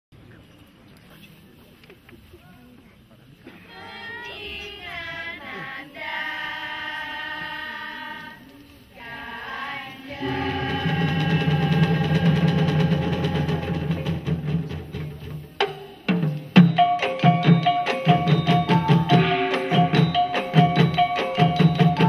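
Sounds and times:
group singing unaccompanied: 3.5s - 14.3s
instrumental ensemble sustained tones: 4.2s - 16.2s.

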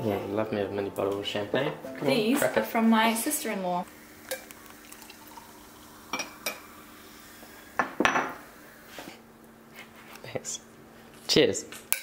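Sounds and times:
faint steady hum: 3.2s - 11.2s
liquid pouring splash: 4.0s - 7.0s
glass clinking and knocking: 7.8s - 8.4s.

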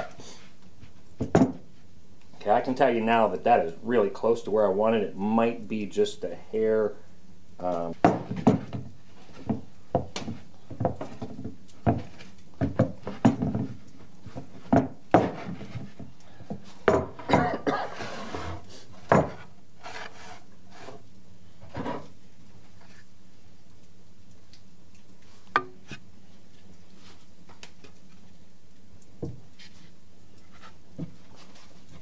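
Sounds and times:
wooden bowl knocking on board: 25.6s - 25.8s.

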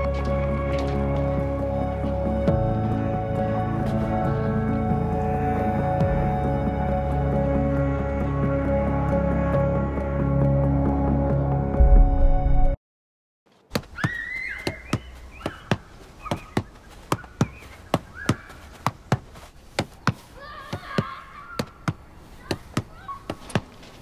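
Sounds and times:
music: 0.0s - 12.8s.

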